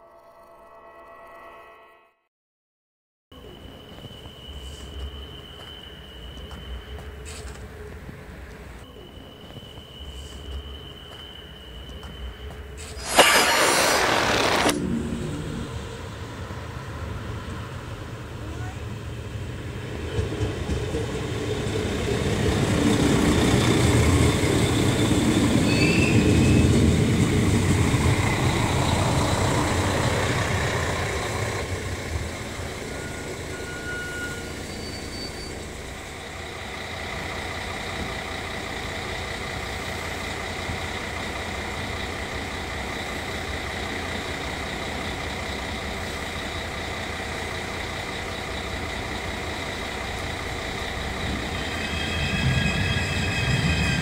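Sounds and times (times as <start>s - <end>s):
railcar engine and wheels rumbling: 3.4s - 54.0s
brief high squeaks: 12.8s - 14.8s, 33.6s - 35.6s
diesel engine idling hum: 26.2s - 51.8s.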